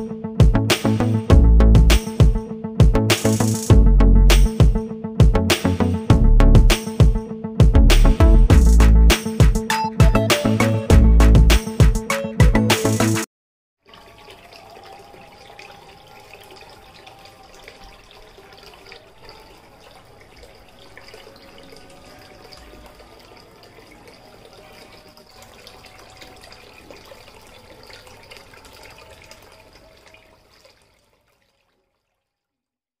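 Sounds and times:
tabletop fountain trickling: 13.8s - 32.8s.

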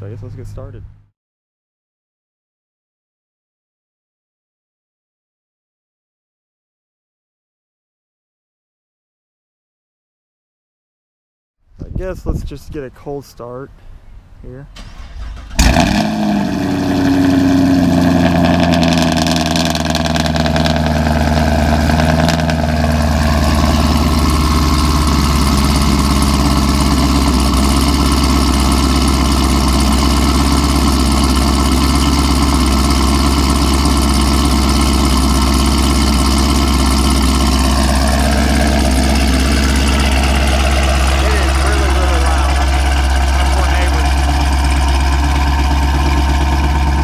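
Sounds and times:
car engine starting and idling: 14.6s - 47.0s.

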